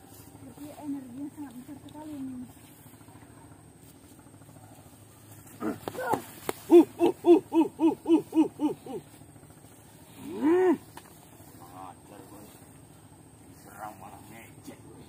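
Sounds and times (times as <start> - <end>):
person hooting: 6.0 - 9.2.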